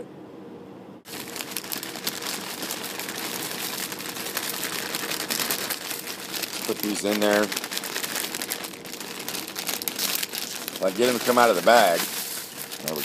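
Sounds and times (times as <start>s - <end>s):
noodles pouring out: 1.1s - 13.0s
plastic bag crinkling: 1.1s - 13.0s.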